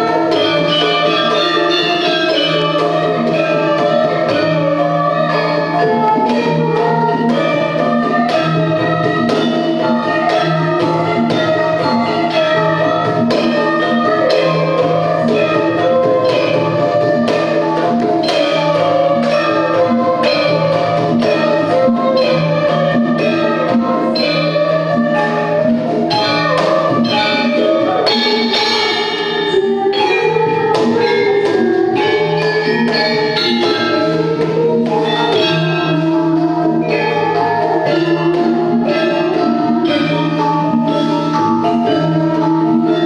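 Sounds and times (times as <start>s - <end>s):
woman singing into microphone: 0.0s - 20.6s
gamelan ensemble playing: 0.0s - 43.0s
hand drum patterns: 0.0s - 43.0s.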